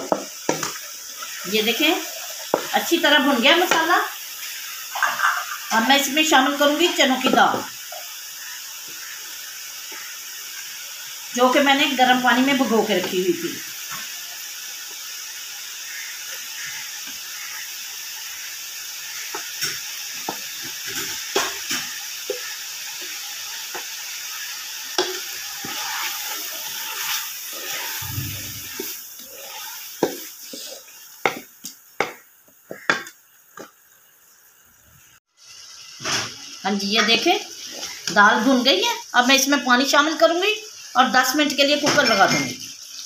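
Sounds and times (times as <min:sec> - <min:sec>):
wooden spoon knocking and scraping pot: 0:00.0 - 0:00.9, 0:02.3 - 0:02.8, 0:31.2 - 0:33.7
dal sizzling in a pot: 0:00.0 - 0:43.0.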